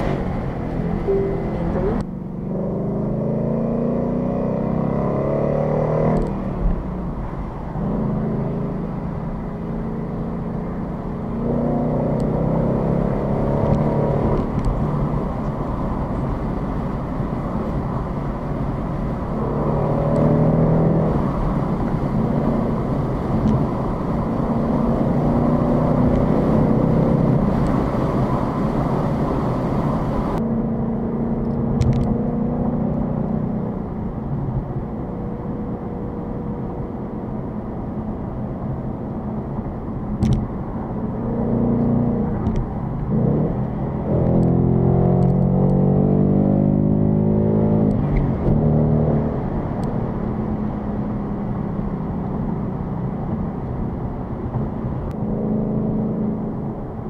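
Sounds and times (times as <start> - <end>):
road noise hiss: 0.0 - 2.6, 6.4 - 30.4
car engine accelerating: 0.0 - 57.0.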